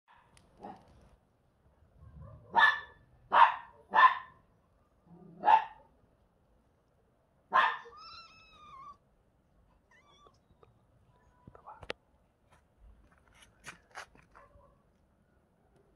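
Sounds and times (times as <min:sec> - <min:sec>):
kitten meowing: 0:07.8 - 0:09.0, 0:09.9 - 0:10.6.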